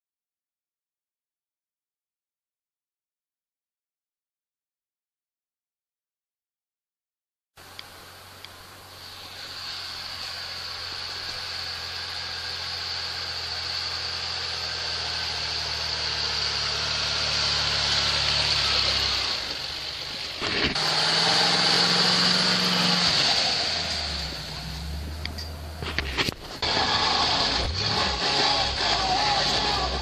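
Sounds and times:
hiss: 0:07.6 - 0:15.3
truck engine hum: 0:07.6 - 0:30.0.

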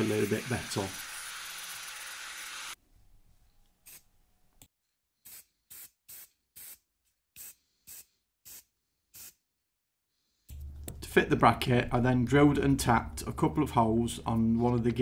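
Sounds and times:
angle grinder on steel: 0:00.0 - 0:02.8
spray paint can hissing: 0:00.0 - 0:02.8, 0:05.2 - 0:09.4.

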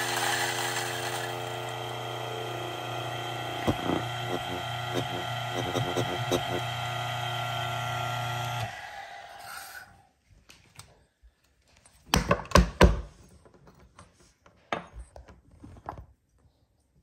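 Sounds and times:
coffee grinder motor winding down: 0:00.0 - 0:09.9
portafilter knocking: 0:03.2 - 0:06.7.

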